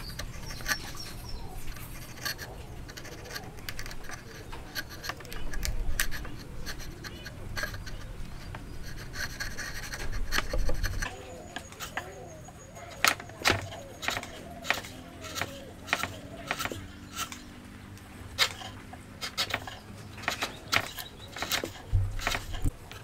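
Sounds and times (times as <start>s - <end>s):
chisel scraping through wood: 0.0s - 17.6s, 18.3s - 23.0s.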